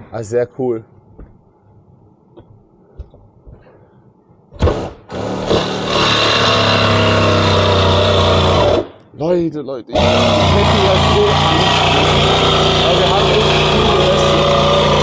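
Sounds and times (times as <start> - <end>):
jigsaw cutting: 4.6 - 8.9, 9.9 - 15.0.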